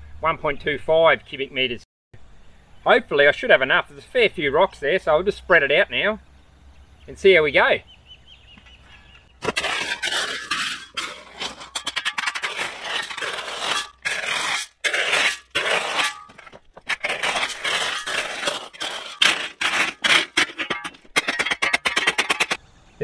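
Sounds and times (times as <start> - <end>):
shovel scraping through stones: 9.4 - 22.6
stones rattling and clinking: 9.4 - 22.6.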